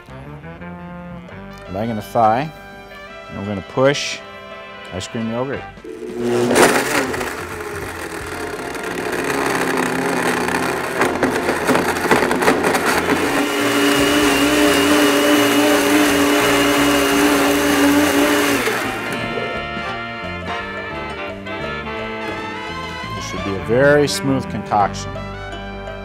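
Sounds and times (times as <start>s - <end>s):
blender motor running: 5.8s - 20.2s.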